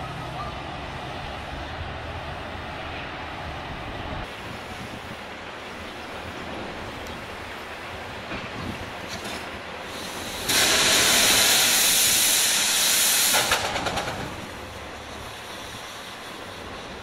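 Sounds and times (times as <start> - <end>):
steam locomotive venting steam: 4.2 - 17.0.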